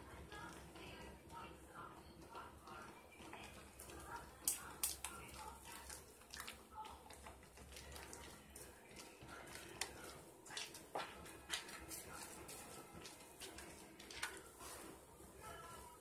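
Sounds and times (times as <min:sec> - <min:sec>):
hands squishing soap lather: 0:03.4 - 0:14.9
sharp wet clicks: 0:04.4 - 0:08.2.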